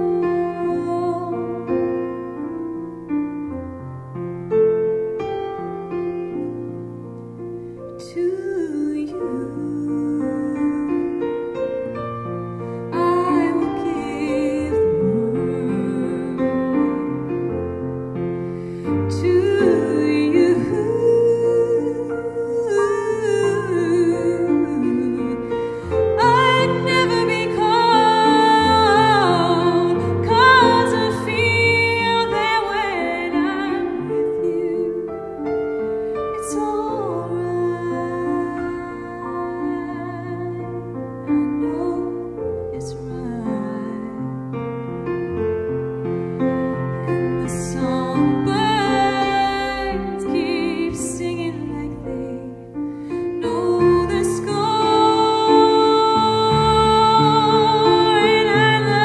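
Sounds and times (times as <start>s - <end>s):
woman singing into microphone: 0.0s - 1.8s, 8.0s - 11.2s, 12.9s - 17.0s, 18.9s - 35.5s, 36.3s - 44.2s, 47.1s - 52.7s, 53.3s - 59.0s.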